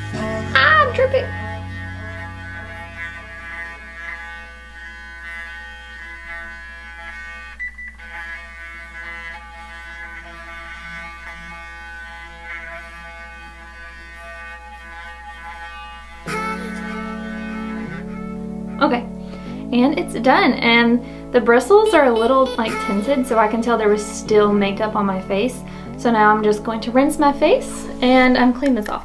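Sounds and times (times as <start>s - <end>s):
background music: 0.0s - 4.0s, 16.2s - 29.0s
facial brush buzzing: 0.0s - 28.6s.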